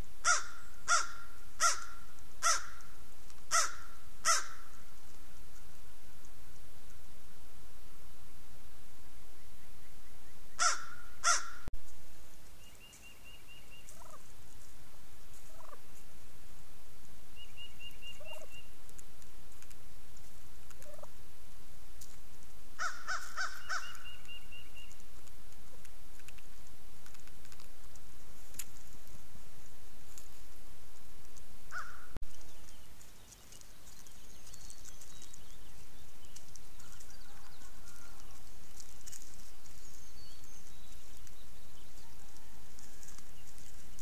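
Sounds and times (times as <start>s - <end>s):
turkeys gobbling: 13.9s - 14.3s, 15.4s - 15.8s, 18.2s - 18.5s, 20.8s - 21.1s
faint short turkey calls: 18.0s - 18.6s.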